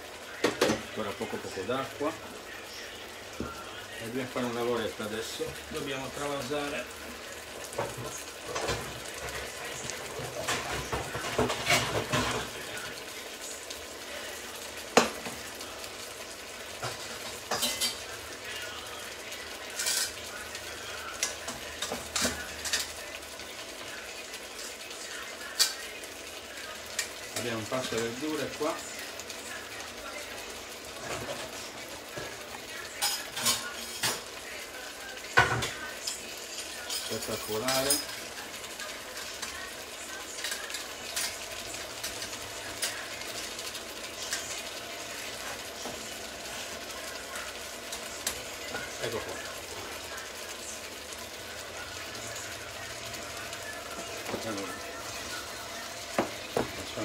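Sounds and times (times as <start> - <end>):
food sizzling in pans: 0.0 - 57.0
metal utensils scraping a pan: 7.7 - 12.6, 16.9 - 18.1, 19.6 - 20.4.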